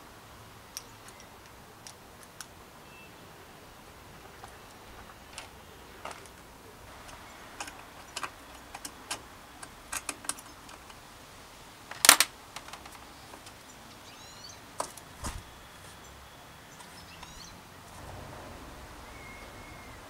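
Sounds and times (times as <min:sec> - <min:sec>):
metal parts clattering: 0:07.0 - 0:11.0, 0:11.9 - 0:13.0
metallic clicks of bicycle parts: 0:07.0 - 0:11.0, 0:11.9 - 0:14.0.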